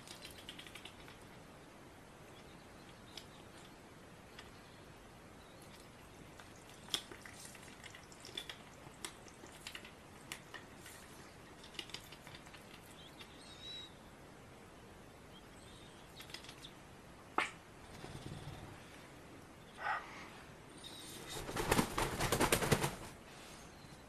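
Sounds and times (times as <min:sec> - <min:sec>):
duck bill clicks and snaps: 0:06.4 - 0:10.7, 0:11.6 - 0:13.3.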